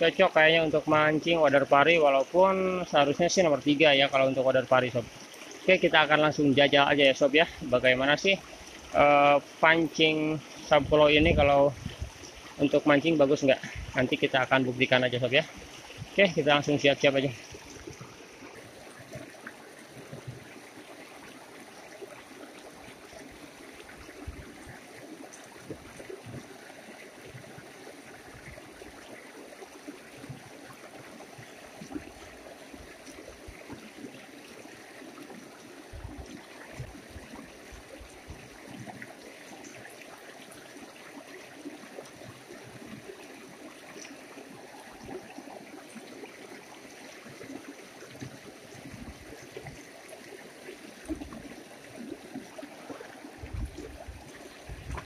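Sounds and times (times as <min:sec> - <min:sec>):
river flowing over stones: 0:00.0 - 0:55.0
soft low thumps: 0:53.4 - 0:55.0.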